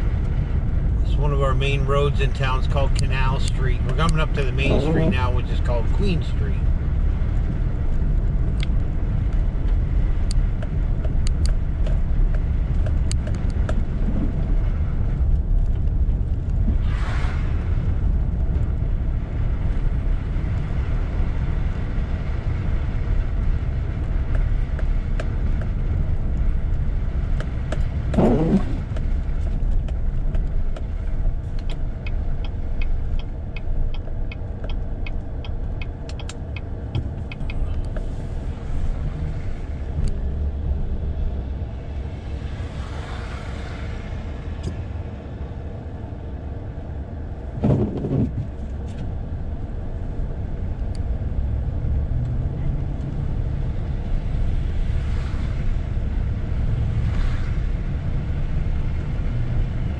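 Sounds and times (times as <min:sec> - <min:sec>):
car engine and tyres on snow: 0:00.0 - 0:59.9
turn signal ticking: 0:24.0 - 0:38.1.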